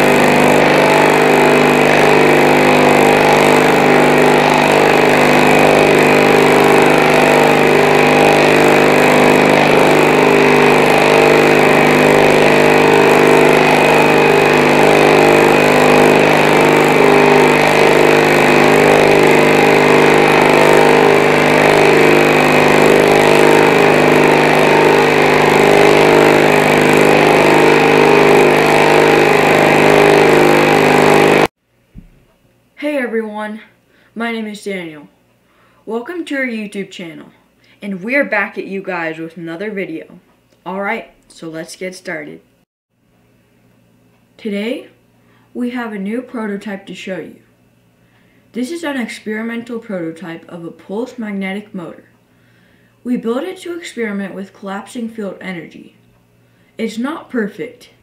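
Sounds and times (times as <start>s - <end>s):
electric motor humming: 0.0s - 31.5s.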